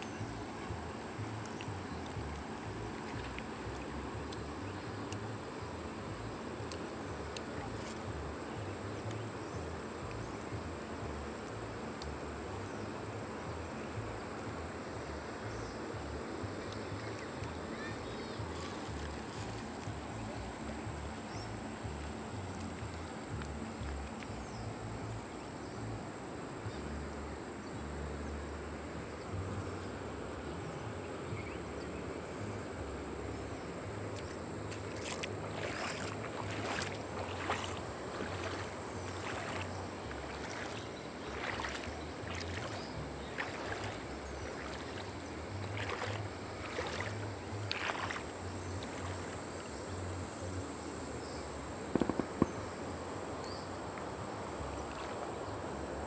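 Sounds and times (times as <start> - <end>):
fast-flowing river rushing: 0.0 - 31.3, 32.8 - 50.9
short sharp crackles: 51.9 - 52.6.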